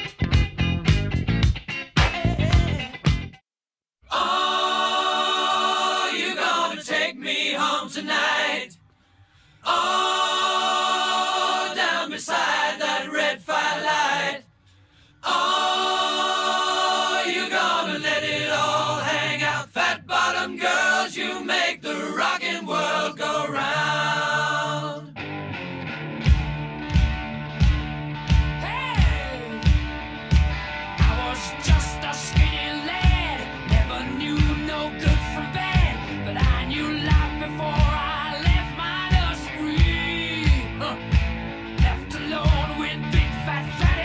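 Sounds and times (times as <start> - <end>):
person singing unaccompanied: 2.1 - 2.9, 31.0 - 41.0, 41.8 - 44.0.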